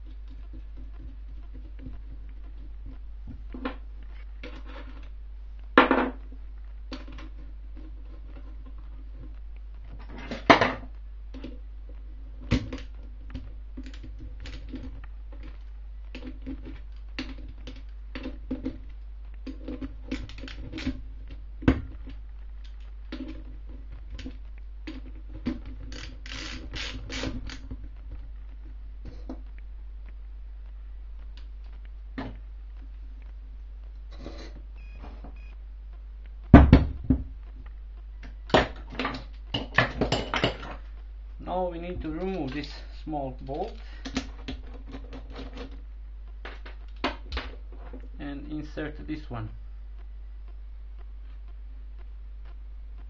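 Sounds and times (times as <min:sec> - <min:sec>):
ratchet wrench clicking: 0:25.9 - 0:27.6.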